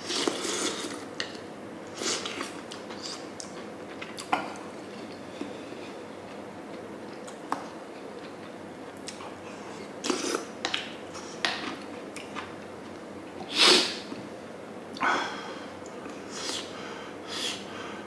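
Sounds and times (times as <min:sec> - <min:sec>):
person slurping and sniffing: 0:00.0 - 0:01.0, 0:16.3 - 0:16.7, 0:17.3 - 0:17.6.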